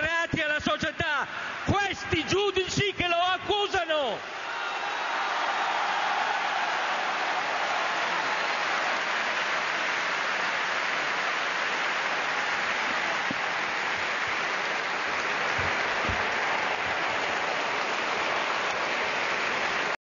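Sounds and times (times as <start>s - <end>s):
audience applauding: 3.8s - 20.0s.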